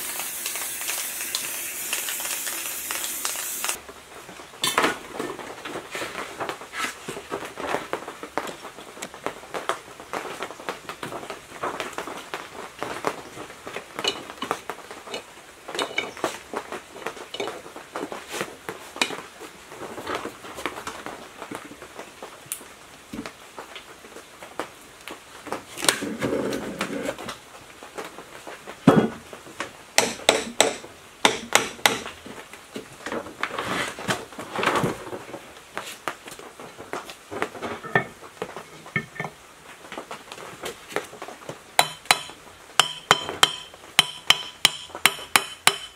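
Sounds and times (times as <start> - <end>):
wrench working on a fitting: 0.0 - 3.8.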